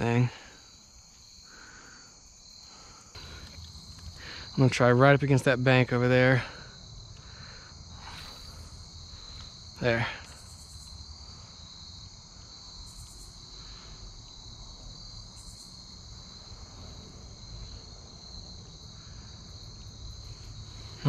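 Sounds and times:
crickets trilling: 0:00.0 - 0:21.0
high insect buzzing bursts: 0:06.7 - 0:11.8.

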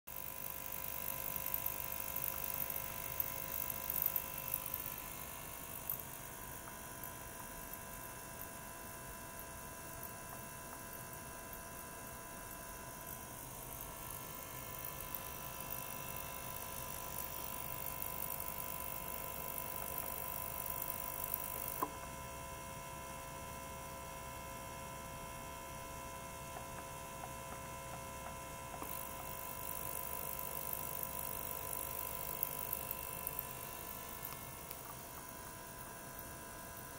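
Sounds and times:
ultrasonic cleaner humming: 0:00.1 - 0:22.4, 0:25.5 - 0:36.9
click: 0:20.8 - 0:22.0, 0:26.6 - 0:29.1, 0:32.4 - 0:35.3.

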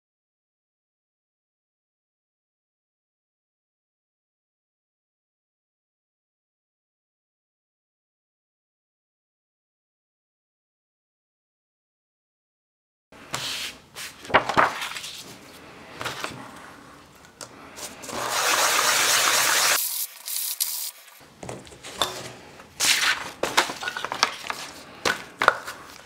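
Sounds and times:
sandpaper rubbing on cutting mat: 0:17.8 - 0:21.2.

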